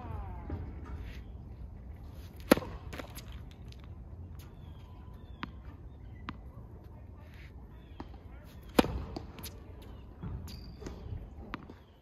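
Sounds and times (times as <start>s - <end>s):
tennis racket hitting ball: 2.3s - 3.4s, 8.6s - 9.6s.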